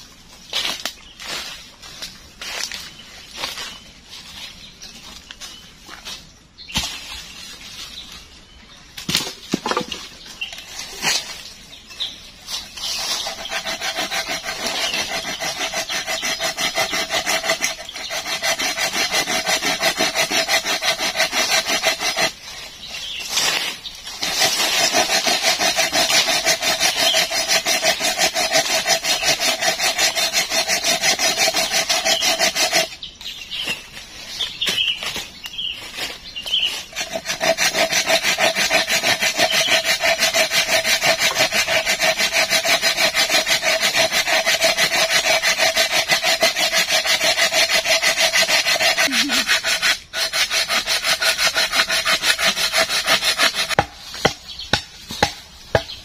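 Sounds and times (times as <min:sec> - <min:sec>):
hand saw cutting log: 0:12.8 - 0:22.5, 0:23.3 - 0:33.0, 0:36.6 - 0:56.0.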